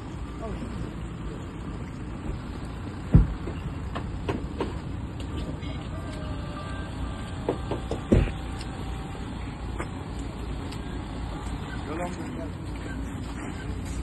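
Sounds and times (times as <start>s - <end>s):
vehicle engines running: 0.0s - 14.0s
heavy thumps: 2.3s - 4.8s.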